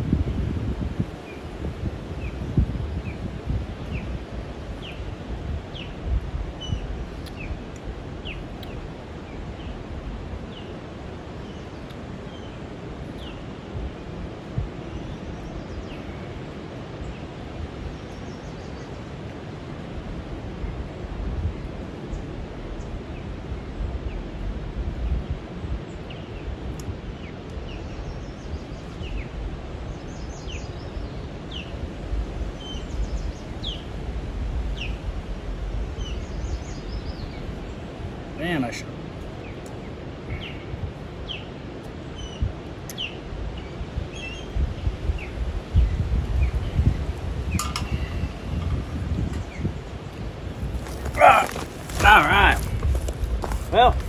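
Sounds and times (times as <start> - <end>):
wind on microphone: 0.0 - 54.0.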